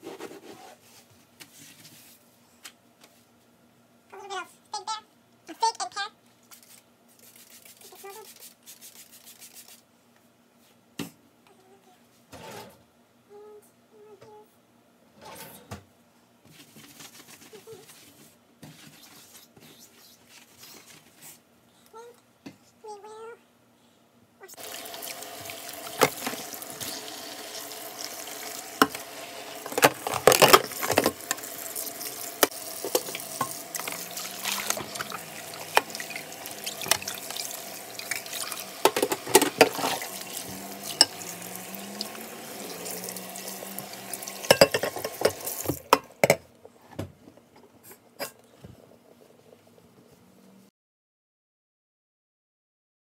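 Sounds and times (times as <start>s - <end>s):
tap water running into sink: 24.6s - 45.9s
dishes and utensils clinking: 29.6s - 31.5s, 32.8s - 37.2s, 40.9s - 41.2s, 44.4s - 46.4s.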